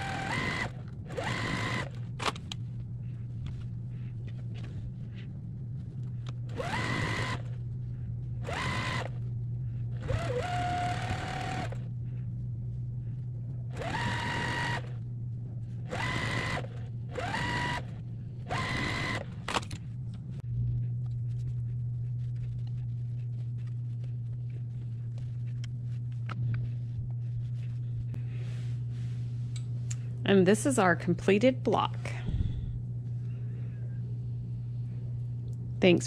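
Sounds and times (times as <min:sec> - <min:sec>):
sewing machine stitching: 0:08.4 - 0:09.1, 0:10.0 - 0:11.8, 0:13.8 - 0:14.9, 0:15.9 - 0:17.9, 0:18.5 - 0:19.2.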